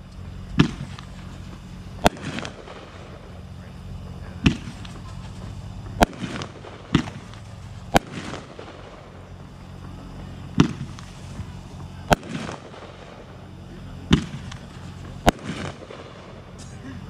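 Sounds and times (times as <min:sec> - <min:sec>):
firework shells banging: 0:00.0 - 0:16.9.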